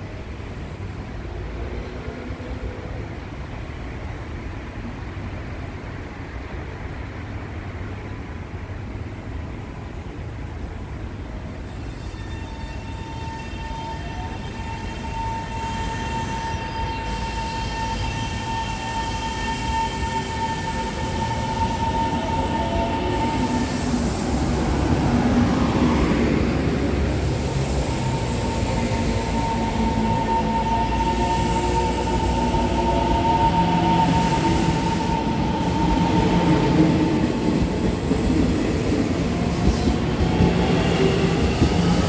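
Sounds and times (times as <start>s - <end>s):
train wheels rumbling on rails: 11.2s - 42.0s
electric train whine: 11.6s - 42.0s.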